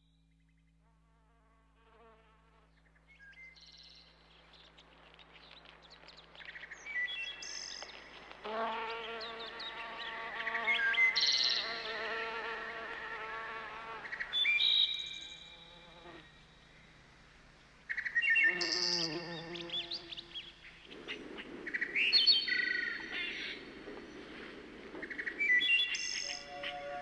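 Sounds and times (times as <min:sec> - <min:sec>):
fly buzzing: 0:08.3 - 0:14.2, 0:18.5 - 0:20.5.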